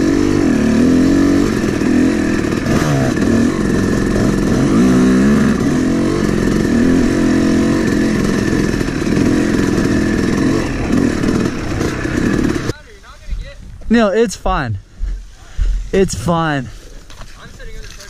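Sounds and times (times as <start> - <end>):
dirt bike engine running hard: 0.0 - 12.8.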